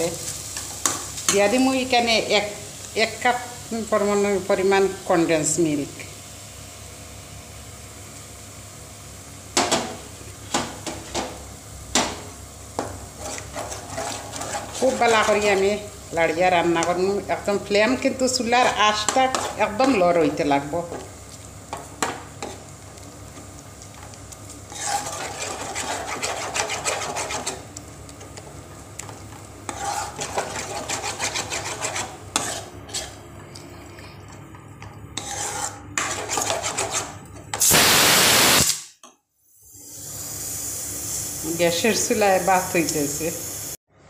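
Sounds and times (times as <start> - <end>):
metal spoon scraping a pan: 13.2 - 15.8, 18.6 - 20.0, 24.7 - 27.6, 29.6 - 33.2, 35.2 - 37.2.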